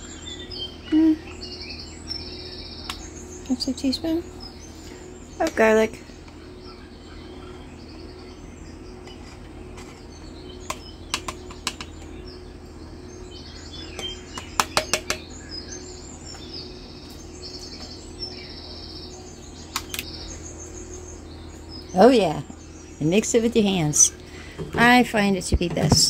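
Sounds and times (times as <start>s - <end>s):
small birds chirping: 0.0s - 26.0s
steady low hum: 0.0s - 26.0s
sharp clicks and taps: 10.7s - 12.0s.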